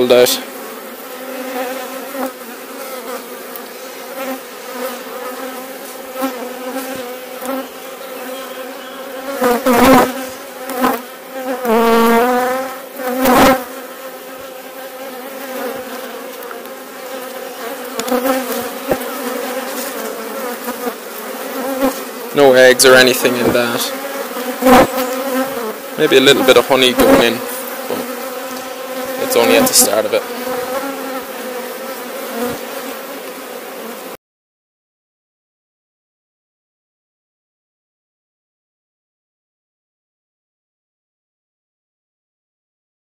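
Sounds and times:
bee buzzing close to microphone: 0.0 - 34.2
honeybee colony buzzing: 0.0 - 34.2.

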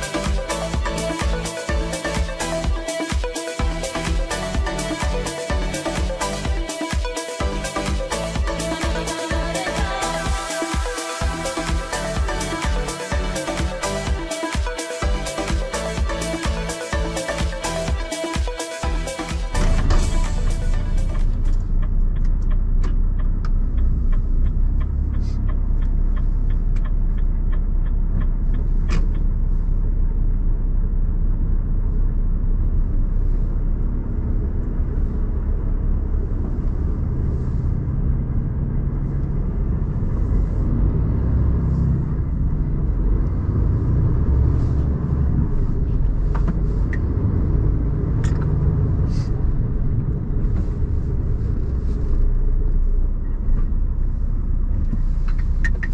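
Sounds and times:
truck engine and road rumble: 0.0 - 18.1, 18.8 - 55.9
turn signal ticking: 0.0 - 30.1, 54.7 - 55.9.

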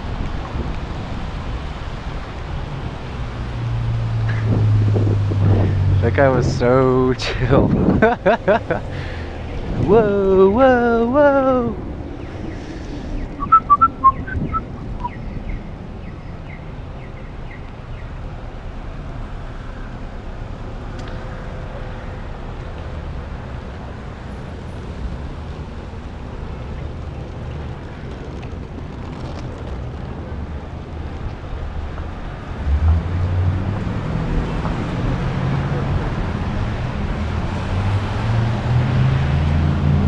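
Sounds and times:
wind rush on microphone: 0.0 - 17.1
bicycle road noise on wet street: 0.0 - 40.0
traffic passing: 0.0 - 40.0
short high chirps: 13.4 - 15.2.

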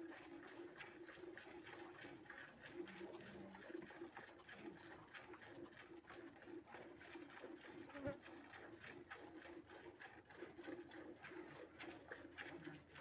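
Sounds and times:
milk squirting into steel pail: 0.0 - 13.0.

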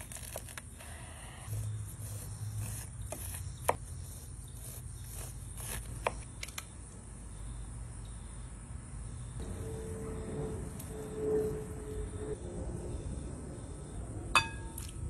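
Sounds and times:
knife cutting corn kernels: 0.0 - 6.2.

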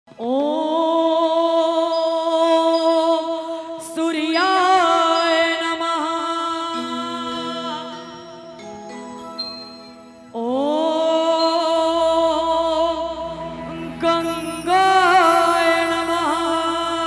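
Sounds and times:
woman singing into a microphone: 0.1 - 8.5, 10.3 - 17.0
low accompaniment tones: 0.2 - 17.0.

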